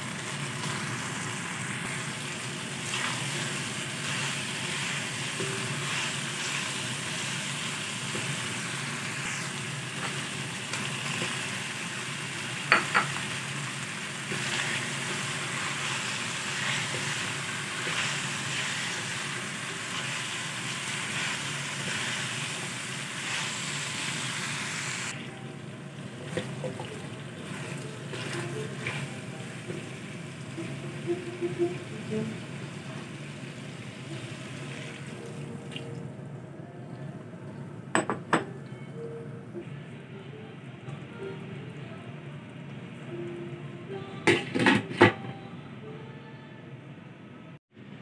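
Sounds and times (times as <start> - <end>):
food sizzling in a wok: 0.0 - 25.2, 27.0 - 35.2.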